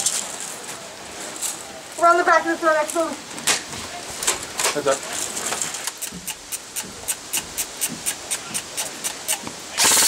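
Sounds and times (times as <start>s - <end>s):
gear and clothing rustling: 0.0s - 6.1s.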